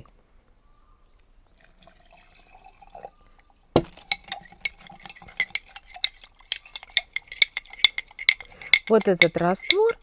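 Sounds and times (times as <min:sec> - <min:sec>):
water pouring into glass jar: 0:01.5 - 0:10.0
teaspoon clinking against glass: 0:03.9 - 0:10.0.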